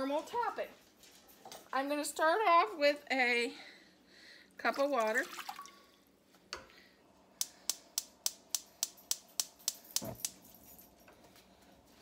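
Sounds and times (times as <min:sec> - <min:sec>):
gas stove igniter clicking: 0:07.4 - 0:10.4.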